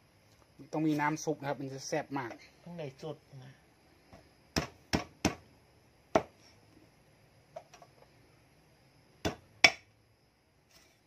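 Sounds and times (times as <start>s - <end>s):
cleaver chopping on board: 6.1s - 6.3s, 9.2s - 9.8s.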